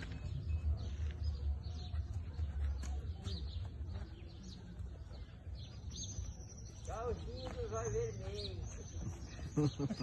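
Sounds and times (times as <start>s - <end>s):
small birds chirping: 0.0s - 10.0s.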